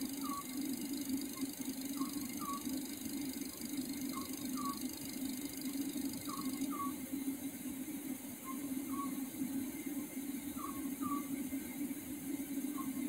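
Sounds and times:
steady low hum: 0:00.0 - 0:13.0
owl hooting: 0:00.1 - 0:00.7, 0:01.3 - 0:07.0.

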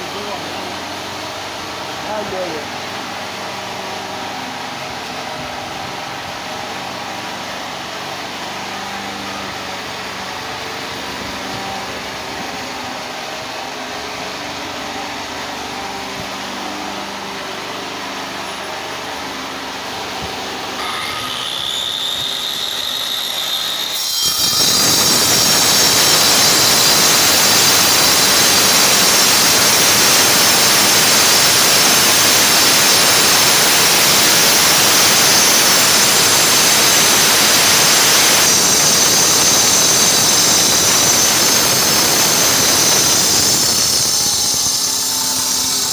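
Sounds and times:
angle grinder grinding stone: 0:20.7 - 0:45.9.

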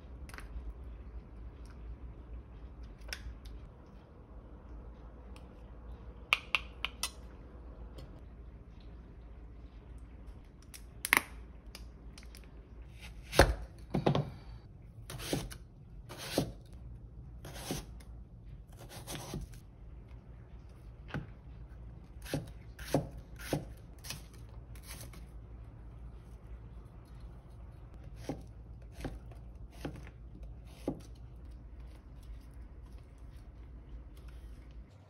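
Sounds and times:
knife cutting vegetables on board: 0:15.1 - 0:16.6, 0:18.8 - 0:19.6, 0:22.2 - 0:24.2.

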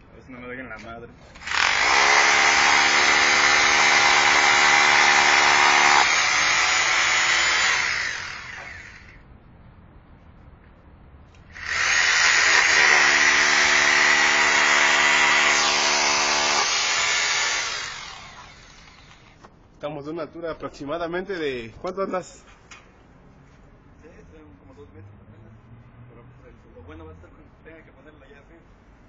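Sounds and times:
power drill boring into ceiling: 0:01.4 - 0:09.1, 0:11.6 - 0:19.4.

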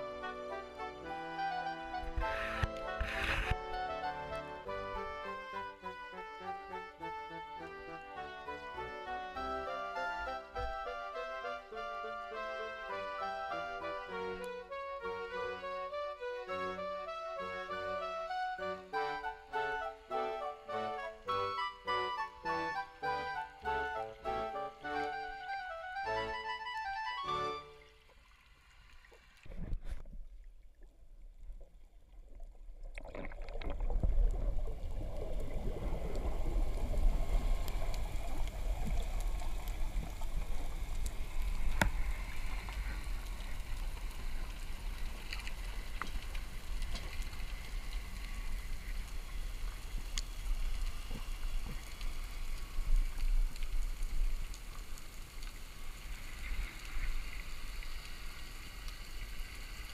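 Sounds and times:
underwater rumble: 0:28.2 - 0:59.9
faint clicks: 0:36.1 - 0:59.9.

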